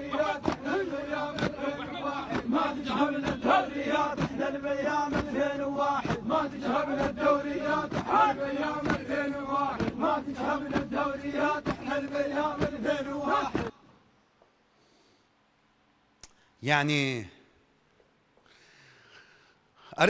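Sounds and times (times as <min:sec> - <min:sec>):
men chanting and shouting: 0:00.0 - 0:13.8.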